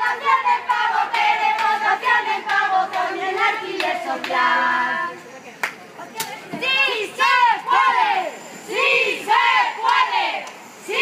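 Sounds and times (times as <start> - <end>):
voices chanting in unison: 0.0 - 5.2, 6.6 - 11.0
hands clapping: 2.4 - 4.5, 5.6 - 6.4.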